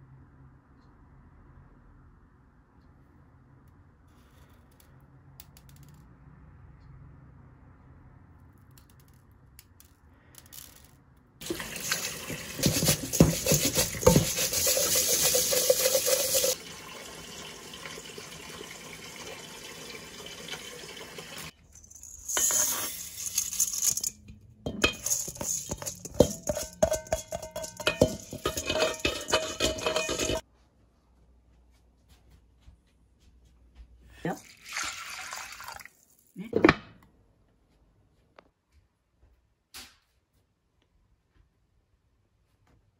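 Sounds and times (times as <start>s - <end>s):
water running and splashing in sink: 11.4s - 21.5s, 34.4s - 35.9s
rice grains scraped on metal bowl: 11.8s - 16.6s, 21.8s - 30.4s.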